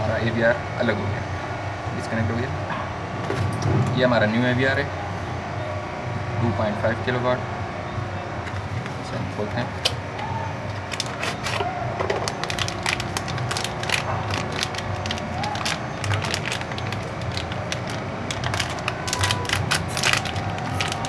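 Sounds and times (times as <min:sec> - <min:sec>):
plastic wrapping crinkling: 0:10.7 - 0:21.0.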